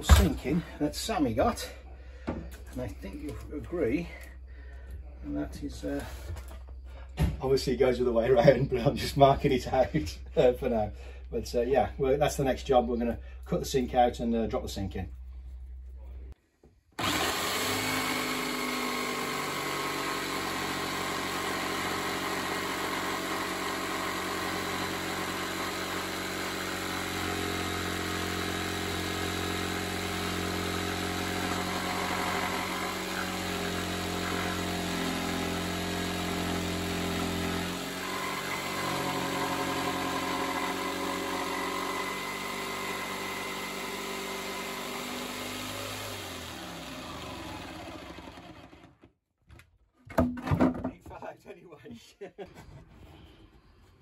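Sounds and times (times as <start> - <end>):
jigsaw cutting wood: 0.0 - 0.6, 17.0 - 49.1.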